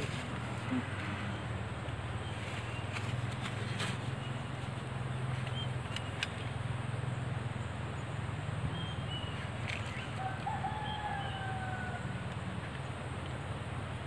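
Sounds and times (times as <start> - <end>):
outdoor background noise: 0.0 - 14.0
sharp clicks: 5.4 - 6.5
faint rooster crowing: 10.1 - 12.6.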